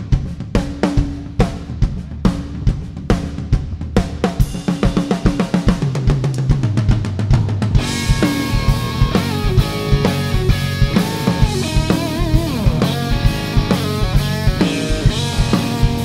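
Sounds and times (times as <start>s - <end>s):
drum kit beat: 0.0s - 16.0s
bass guitar: 6.0s - 16.0s
electric guitar bent notes: 7.8s - 16.0s.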